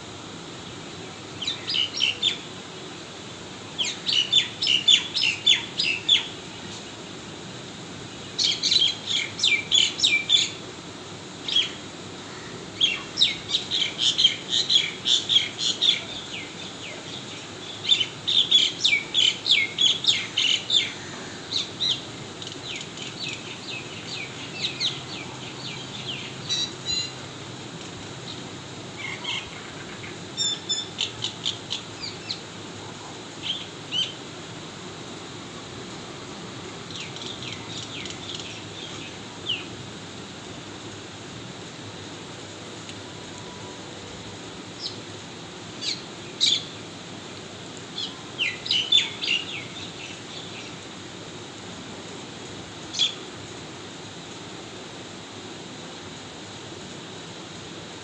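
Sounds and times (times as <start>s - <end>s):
bird chirping: 22.6s - 27.2s.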